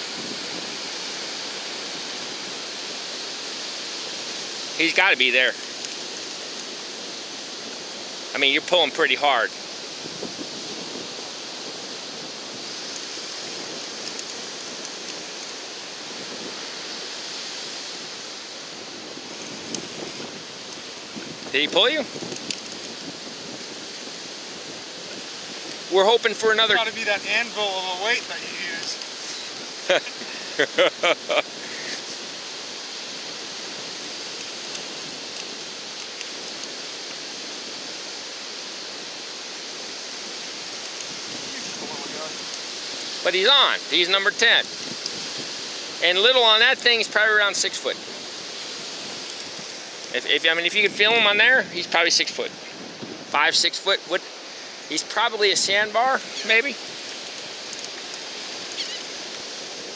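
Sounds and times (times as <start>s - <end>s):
ocean surf on beach: 0.0s - 59.9s
wind: 0.0s - 59.9s
man laughing: 29.8s - 32.1s
faint clicks: 57.1s - 59.4s.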